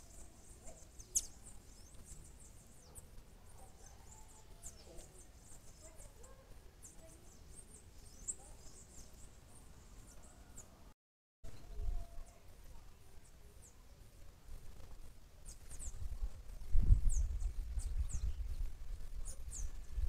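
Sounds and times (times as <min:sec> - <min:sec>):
small birds chirping: 0:00.0 - 0:10.9, 0:11.5 - 0:20.0.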